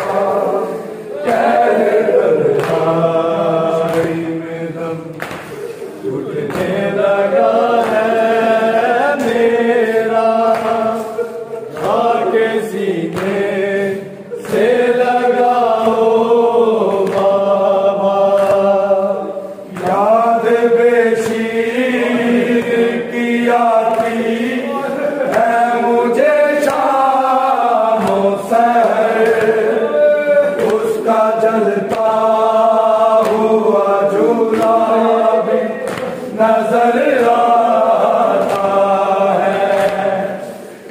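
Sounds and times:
group of voices chanting a lament: 0:00.0 - 0:40.9.

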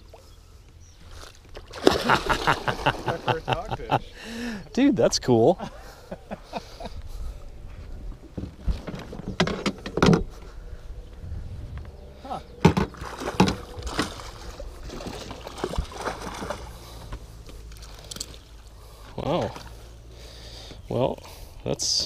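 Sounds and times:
water splashing against boat: 0:01.2 - 0:03.6, 0:12.6 - 0:20.0
knocks against boat: 0:12.6 - 0:14.1.

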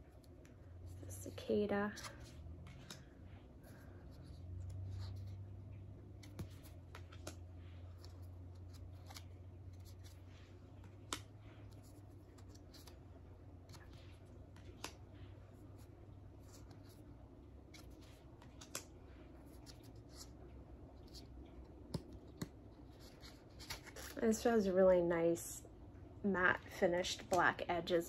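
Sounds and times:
faint low hum: 0:00.0 - 0:28.0
cards sliding and clicking: 0:02.0 - 0:03.1, 0:06.1 - 0:13.0, 0:17.7 - 0:20.4.

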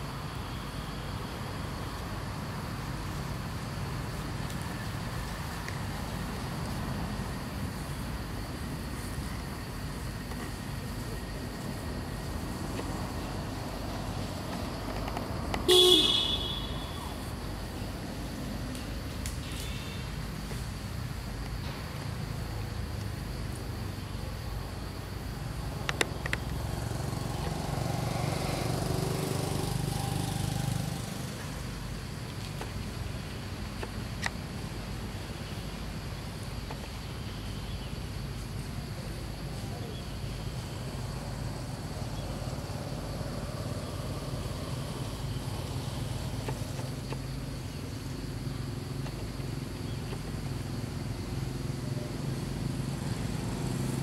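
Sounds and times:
distant vehicle engine passing: 0:25.5 - 0:32.2, 0:40.3 - 0:54.0.

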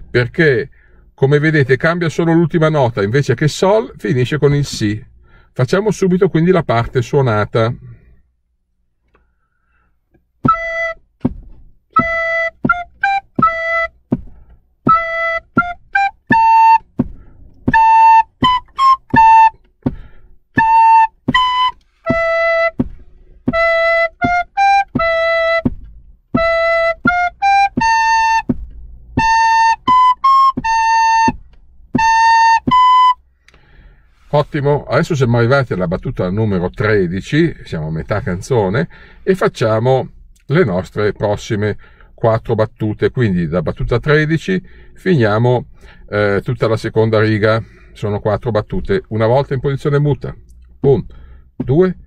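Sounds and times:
recorder melody: 0:10.4 - 0:33.3.

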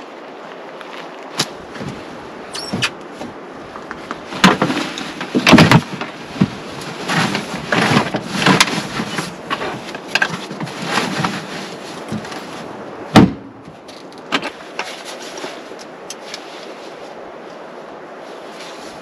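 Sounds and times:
knocks and clattering: 0:03.9 - 0:11.4
loud sharp thump: 0:13.1 - 0:13.5.

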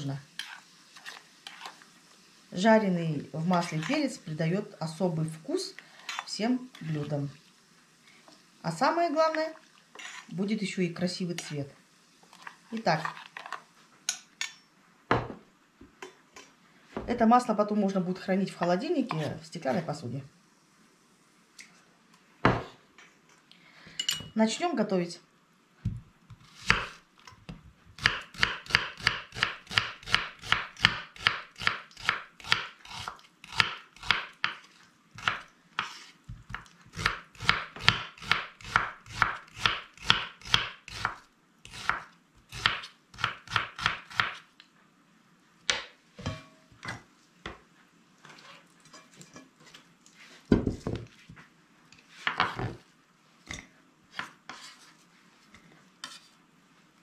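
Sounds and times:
knife scraping board: 0:00.4 - 0:01.8, 0:09.9 - 0:10.3, 0:35.8 - 0:36.2, 0:54.1 - 0:55.0, 0:56.0 - 0:56.3
knife slicing onion on board: 0:26.3 - 0:27.0, 0:28.0 - 0:34.6, 0:35.2 - 0:44.5.

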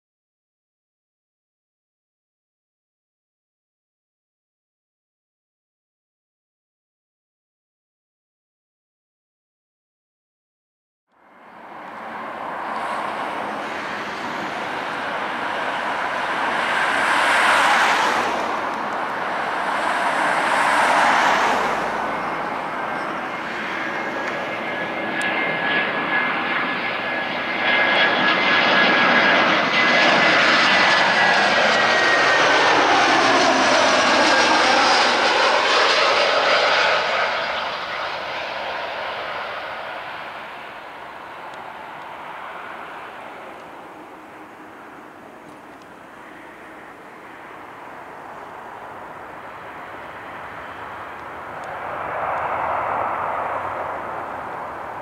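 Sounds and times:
jet engines whining: 0:11.5 - 0:55.0.

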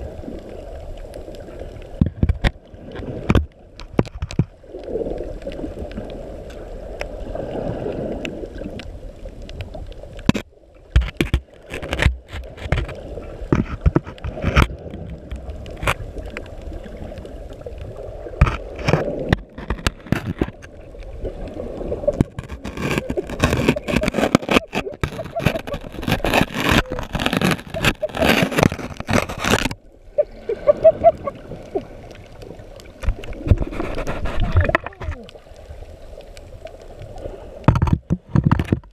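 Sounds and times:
knocks and scrapes on camera: 0:10.2 - 0:14.8, 0:18.4 - 0:20.8, 0:22.1 - 0:29.8, 0:33.0 - 0:35.3, 0:37.6 - 0:38.9
muffled underwater noise: 0:20.1 - 0:37.5.

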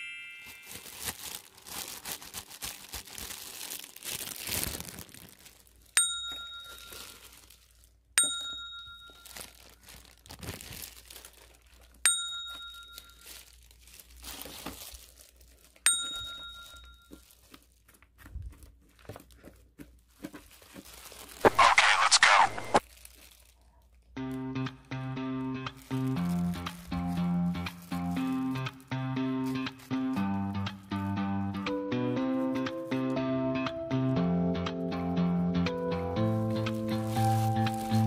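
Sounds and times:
plastic packaging crinkling: 0:00.3 - 0:24.2, 0:25.6 - 0:30.4, 0:36.2 - 0:38.0.

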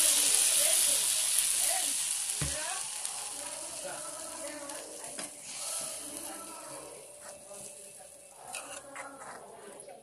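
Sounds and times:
curry sizzling in a pan: 0:00.0 - 0:10.0
metal ladle stirring: 0:07.2 - 0:09.4.

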